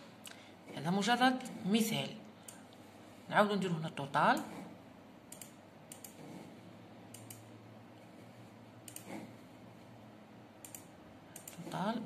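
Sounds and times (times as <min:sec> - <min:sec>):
computer keys clicking: 0:05.3 - 0:06.2, 0:07.1 - 0:07.5, 0:08.8 - 0:09.2, 0:10.6 - 0:11.8.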